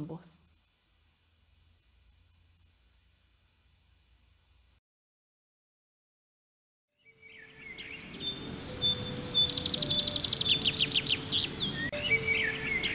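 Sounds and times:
steady noise bed: 0:00.0 - 0:04.8
small birds chirping and trilling: 0:07.1 - 0:12.9.

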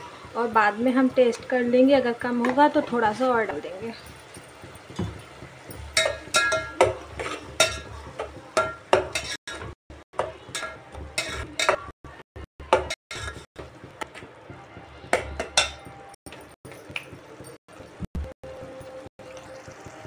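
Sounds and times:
metal spatula scraping pot: 0:04.3 - 0:09.8, 0:10.4 - 0:11.9, 0:12.7 - 0:13.5.

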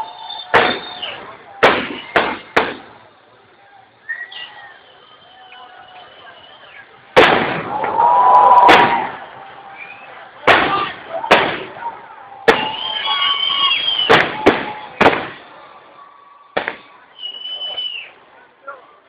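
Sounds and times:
fireworks bangs: 0:00.0 - 0:03.3, 0:07.1 - 0:15.9, 0:16.5 - 0:17.8
fireworks whistling: 0:00.0 - 0:18.2.

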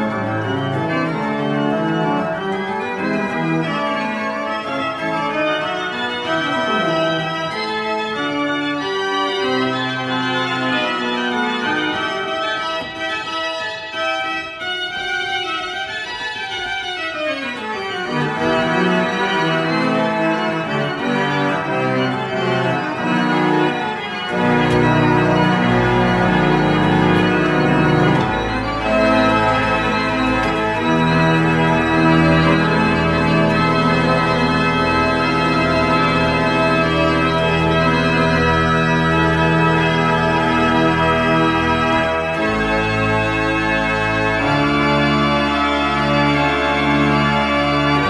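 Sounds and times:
pipe organ playing chords: 0:00.0 - 0:48.0.

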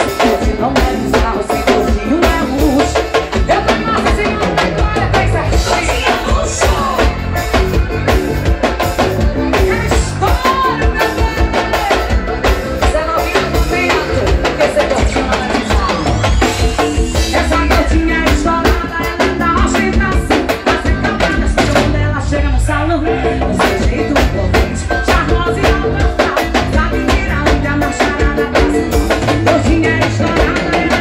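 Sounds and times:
accordion melody: 0:00.0 - 0:31.0
congas: 0:00.0 - 0:31.0
drum kit beat: 0:00.0 - 0:31.0
keyboard melody: 0:00.0 - 0:31.0.

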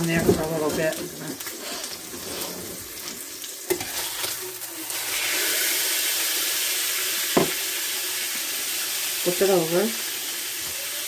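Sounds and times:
steak sizzling in a skillet: 0:00.0 - 0:11.0.

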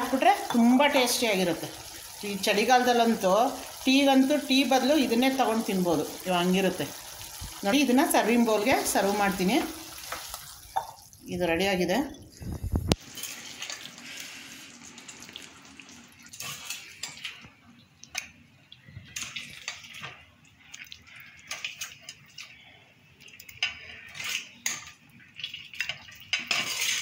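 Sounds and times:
ladle scraping a metal pan: 0:26.3 - 0:27.0.

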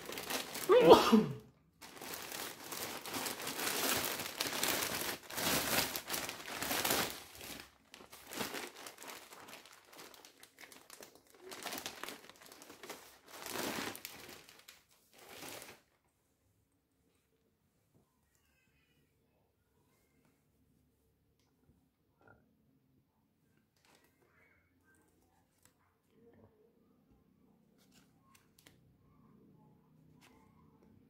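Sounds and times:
plastic packaging crinkling: 0:00.0 - 0:01.2, 0:01.8 - 0:16.0.

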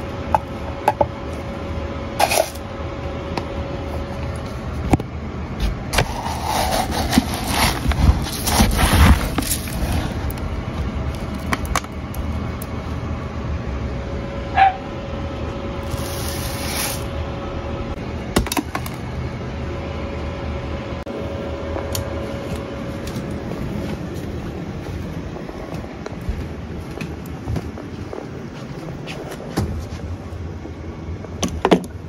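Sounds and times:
steady low hum: 0:00.0 - 0:32.0
rice pouring hiss: 0:15.8 - 0:17.1.

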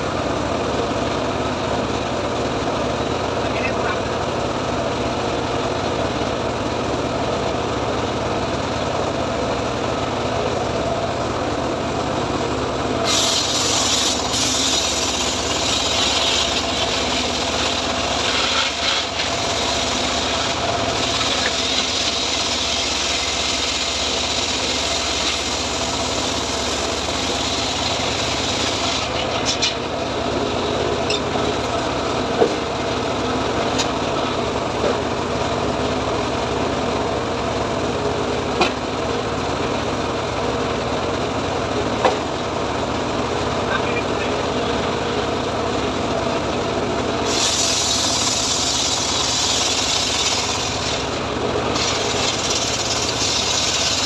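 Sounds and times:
circular saw motor running: 0:12.9 - 0:34.7, 0:47.0 - 0:54.0
saw blade ripping through log: 0:18.1 - 0:26.4, 0:47.3 - 0:51.1, 0:51.7 - 0:54.0.

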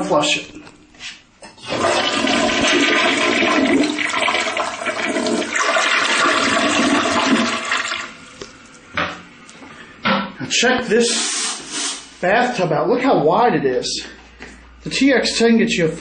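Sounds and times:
toilet flushing: 0:01.4 - 0:08.4.

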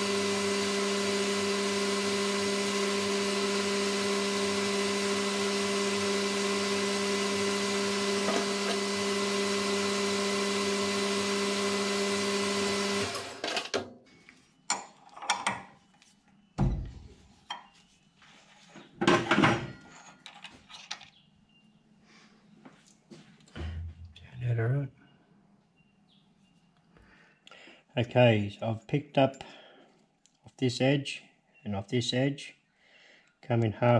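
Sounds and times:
metal lathe running: 0:00.0 - 0:13.4.

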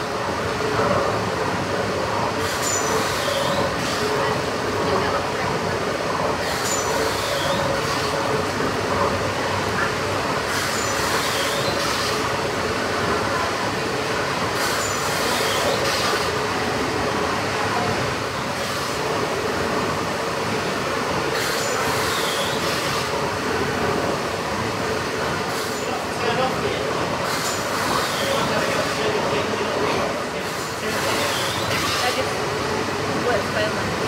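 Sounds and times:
steam engine mechanical din: 0:02.3 - 0:04.9, 0:06.1 - 0:34.0.

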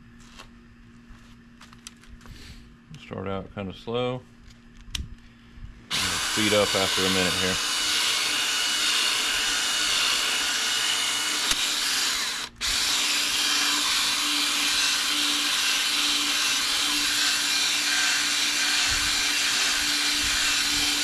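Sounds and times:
cordless drill whirring: 0:05.9 - 0:21.0.

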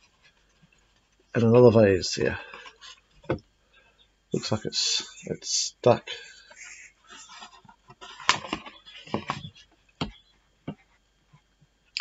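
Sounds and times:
paper rustling: 0:06.5 - 0:09.7.

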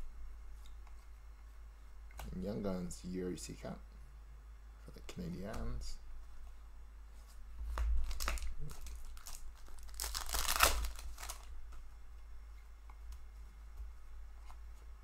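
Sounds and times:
cards rustling: 0:07.7 - 0:11.5
foil wrapper tearing and crinkling: 0:08.0 - 0:11.5.

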